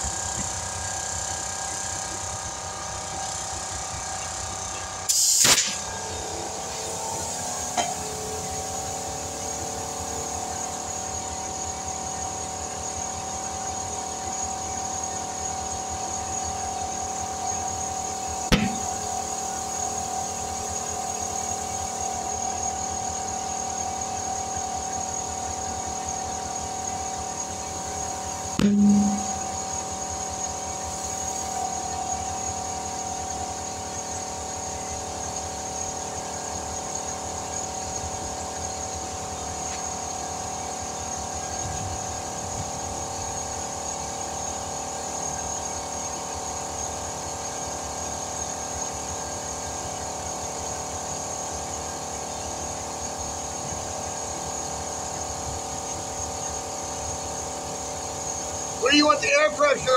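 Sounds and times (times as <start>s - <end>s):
loud thump: 18.5s - 19.0s, 28.6s - 29.4s
compressed air hum: 18.5s - 19.4s, 28.6s - 29.7s, 58.8s - 59.9s.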